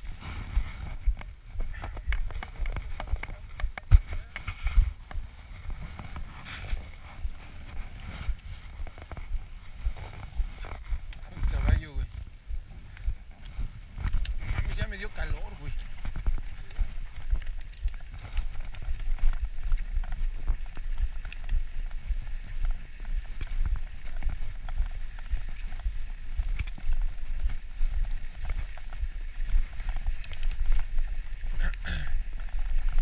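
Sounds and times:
bike tyre noise: 0:00.0 - 0:33.0
wind rumbling on microphone: 0:00.0 - 0:33.0
bike knocking and rattling: 0:01.0 - 0:12.0, 0:12.9 - 0:33.0.

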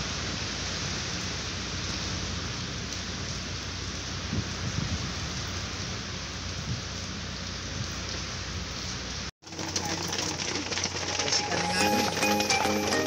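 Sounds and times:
rain falling steadily: 0:00.0 - 0:13.0.

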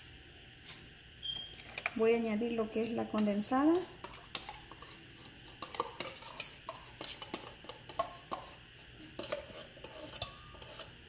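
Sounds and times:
spoon scraping and clinking in can: 0:04.0 - 0:11.0.

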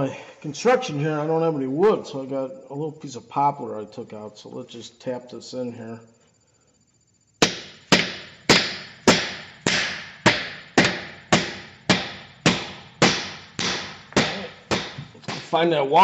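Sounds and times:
hammer striking wood on metal: 0:07.4 - 0:15.6.

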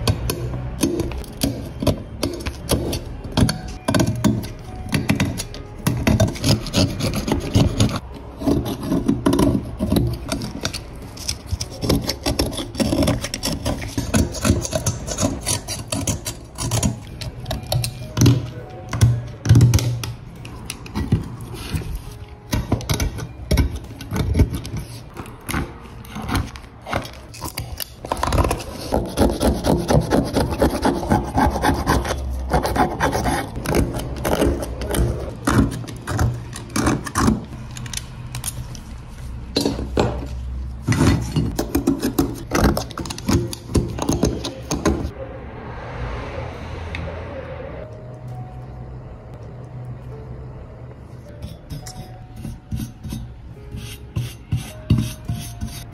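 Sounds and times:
knife blade scraping metal: 0:00.3 - 0:18.5, 0:51.2 - 0:55.9.

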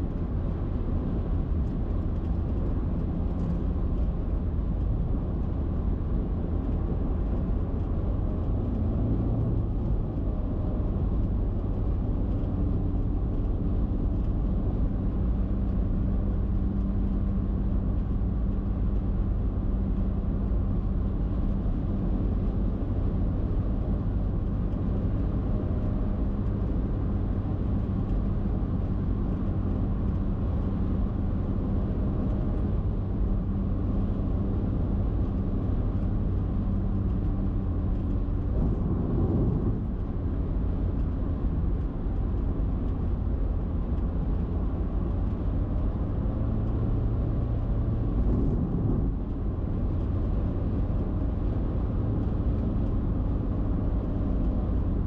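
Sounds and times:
car road noise: 0:00.0 - 0:55.0
tyre and wind noise: 0:25.0 - 0:55.0.

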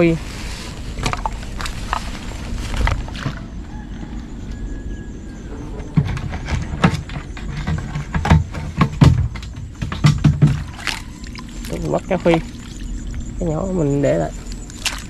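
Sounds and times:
knocks and thumps from fish trap: 0:05.5 - 0:13.2.

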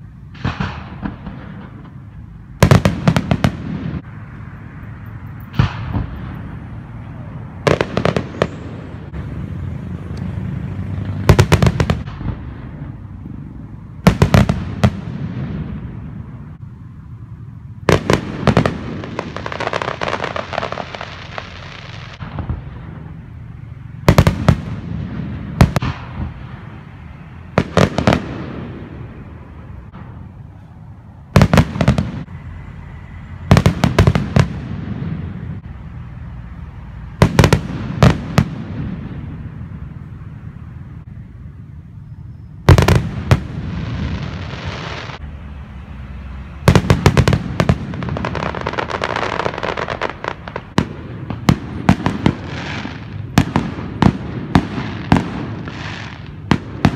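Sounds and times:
firework crackle: 0:00.0 - 0:04.3, 0:07.6 - 0:16.6, 0:17.8 - 0:30.3, 0:42.6 - 0:45.2, 0:46.3 - 0:56.9.

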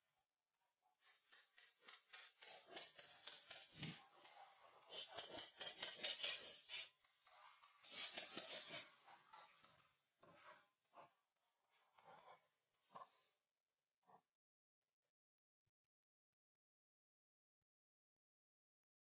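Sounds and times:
stick scraping gritty mixture in can: 0:01.2 - 0:10.6.

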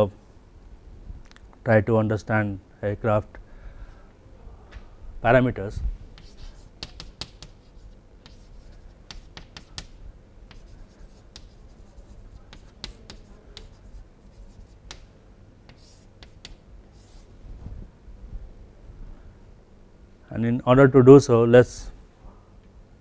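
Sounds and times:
chalk writing on chalkboard: 0:06.1 - 0:17.3.

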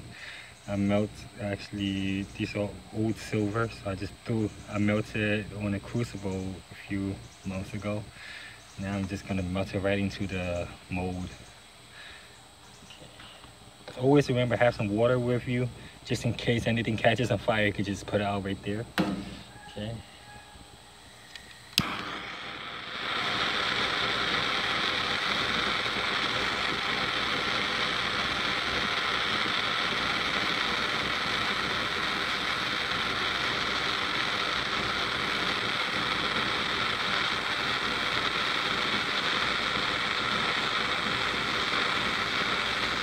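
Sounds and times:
gas torch flame hissing: 0:00.0 - 0:43.0
gas torch igniter click: 0:21.3 - 0:43.0.

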